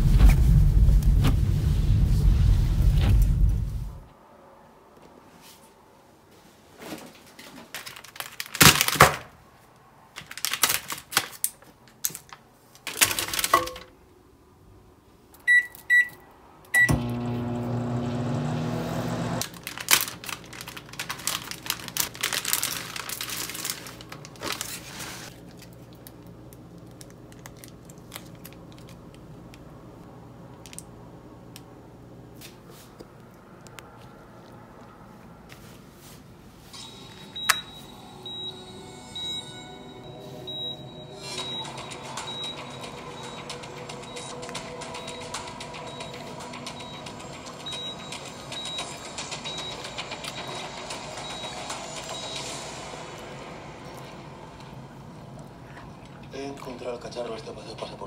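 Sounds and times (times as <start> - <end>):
plastic food packet crinkling: 7.7 - 9.2, 10.1 - 13.6, 19.4 - 29.2
microwave keypad beeps: 15.5 - 16.2, 16.8 - 17.1, 37.0 - 52.6
microwave oven humming: 16.8 - 19.4.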